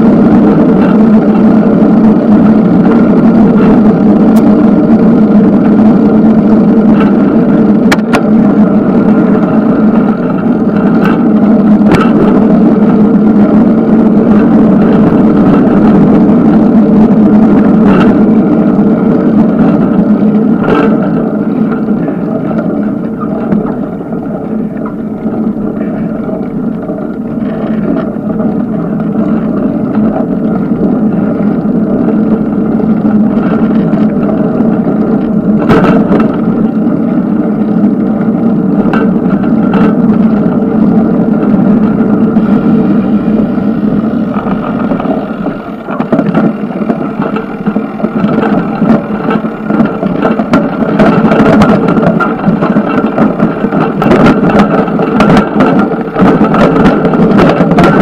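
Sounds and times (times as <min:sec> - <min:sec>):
bicycle knocking over bumps: 0:00.0 - 0:58.0
bicycle tyre noise: 0:00.0 - 0:58.0
wind on microphone: 0:00.0 - 0:58.0.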